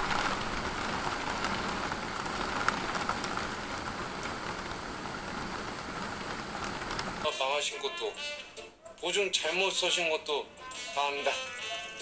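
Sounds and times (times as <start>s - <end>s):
heavy rain falling: 0.0s - 7.4s.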